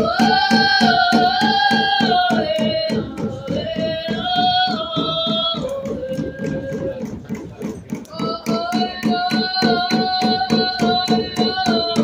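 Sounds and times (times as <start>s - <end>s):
group of young singers singing: 0.0s - 6.6s, 8.2s - 12.0s
fast steady drumbeats: 0.0s - 12.0s.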